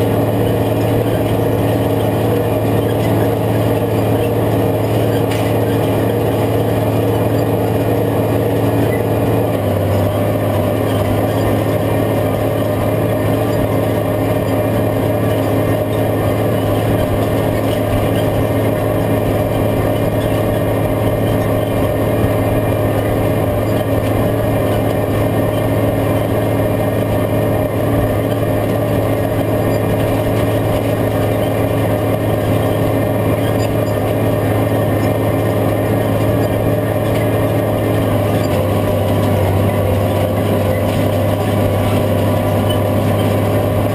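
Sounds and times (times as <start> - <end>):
tractor diesel engine under load: 0.0 - 43.9.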